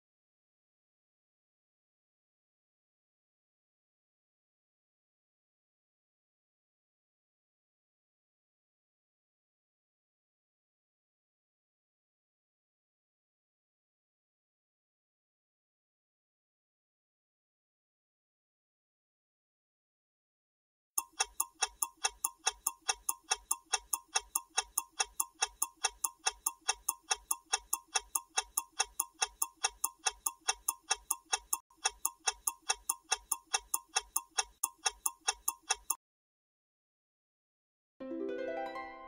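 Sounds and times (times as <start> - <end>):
rapid clock-like ticking: 21.0 - 36.0.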